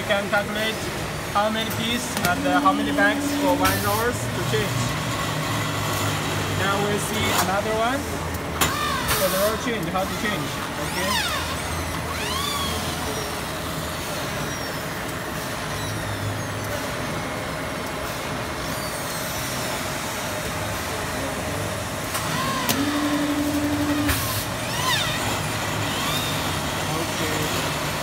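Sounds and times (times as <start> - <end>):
machine running steadily: 0.0 - 28.0
machine whines sweeping in pitch: 2.4 - 4.7, 22.3 - 27.5.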